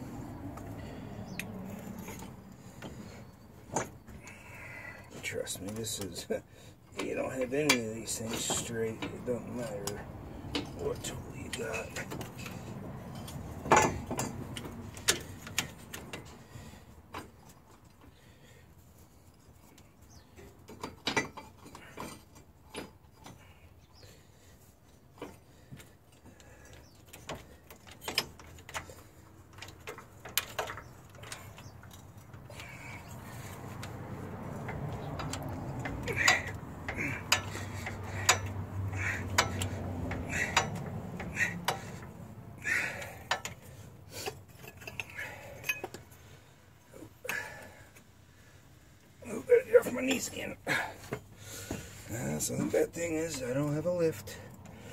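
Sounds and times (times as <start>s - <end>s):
metal clicks and clinks: 27.1s - 46.1s.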